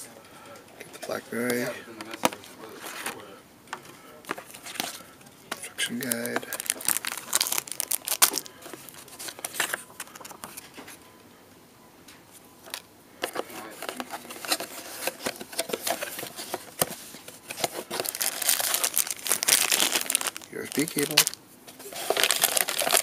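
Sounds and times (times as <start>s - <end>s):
paper and cardboard rustling: 1.1s - 3.3s, 4.3s - 5.1s, 6.0s - 11.0s, 13.2s - 23.0s
plastic wrapping crinkling: 6.0s - 10.8s, 13.2s - 23.0s.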